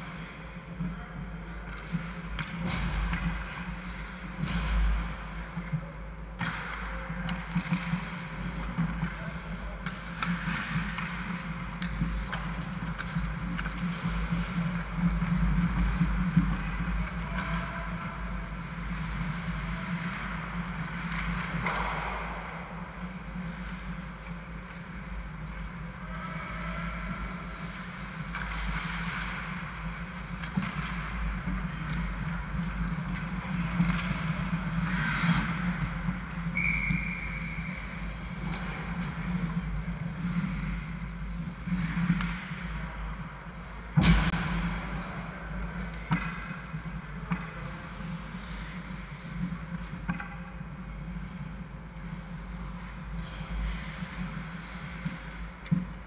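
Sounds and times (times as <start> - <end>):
skate scrapes and knocks: 6.3 - 24.0, 27.4 - 43.1
puck or stick crack: 6.3 - 24.8, 27.5 - 42.8, 43.9 - 51.3.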